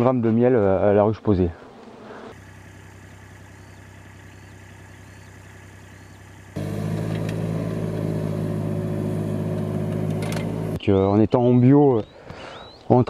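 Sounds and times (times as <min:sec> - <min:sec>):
machine engine idling: 0:02.4 - 0:10.8.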